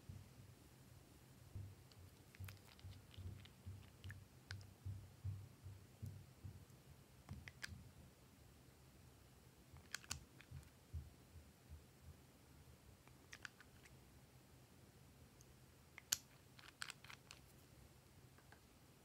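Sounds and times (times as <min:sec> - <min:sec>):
soft handling bumps: 0:01.5 - 0:07.9.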